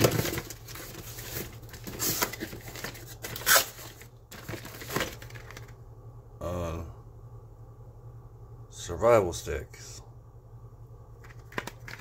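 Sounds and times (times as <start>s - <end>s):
packaging crinkling: 0.0s - 5.8s, 11.2s - 12.0s.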